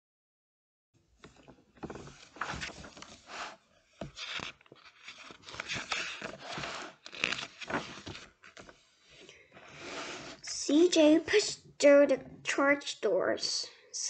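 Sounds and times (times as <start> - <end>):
book pages turning: 1.2 - 8.8.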